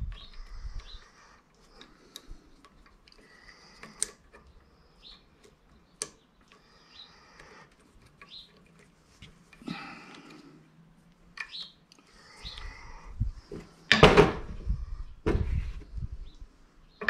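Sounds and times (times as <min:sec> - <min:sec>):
small parts clicking and ticking: 0:00.0 - 0:09.0.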